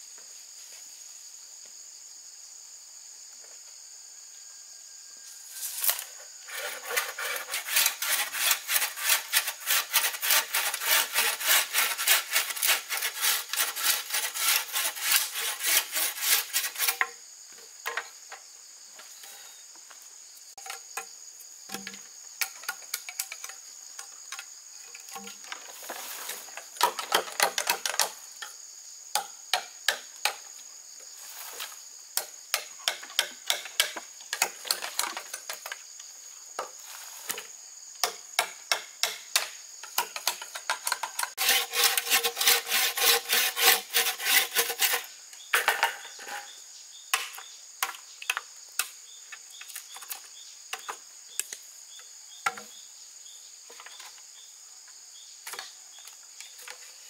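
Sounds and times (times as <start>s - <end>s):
insect drone: 0.0s - 57.0s
hand saw sawing: 6.4s - 17.1s, 41.3s - 45.1s.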